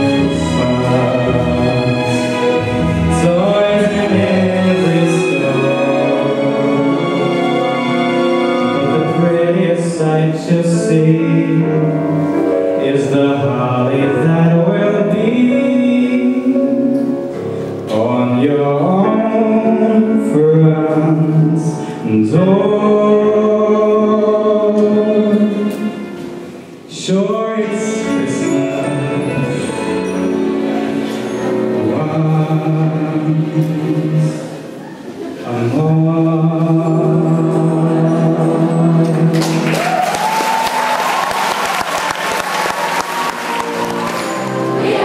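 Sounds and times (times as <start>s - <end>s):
group singing in harmony: 0.0s - 11.4s, 43.3s - 45.0s.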